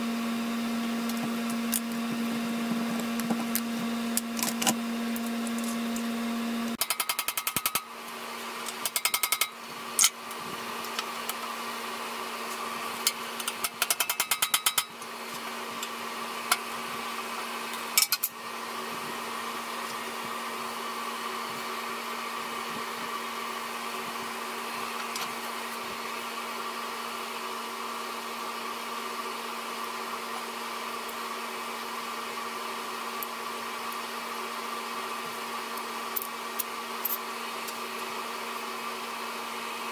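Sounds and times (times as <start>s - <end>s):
steady mechanical hum: 0.0s - 39.9s
ratchet wrench clicking: 6.8s - 7.8s, 8.8s - 10.1s, 13.4s - 14.9s.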